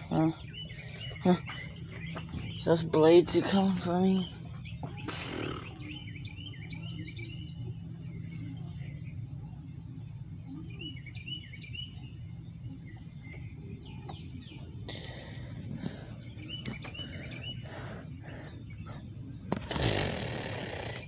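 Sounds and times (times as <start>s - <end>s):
low background rumble: 0.0s - 21.0s
small birds chirping: 0.0s - 21.0s.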